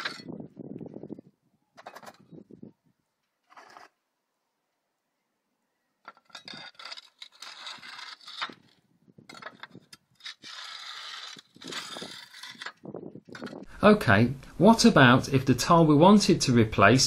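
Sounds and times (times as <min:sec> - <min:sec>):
clay tiles scraping: 0:00.0 - 0:00.3, 0:01.8 - 0:02.3, 0:03.4 - 0:04.0, 0:06.0 - 0:13.7.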